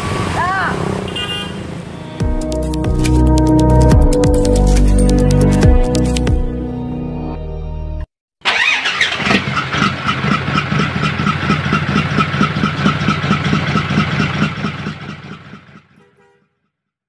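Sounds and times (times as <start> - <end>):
truck engine starting and running: 2.2 - 16.1.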